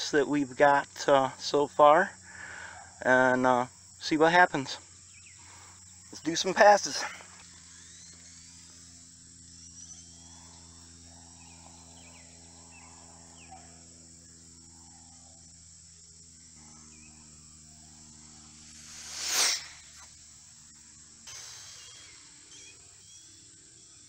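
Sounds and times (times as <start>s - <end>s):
insect chirring: 0.0s - 24.0s
rc car high-pitched whine: 0.0s - 24.0s
low hum: 7.2s - 23.9s.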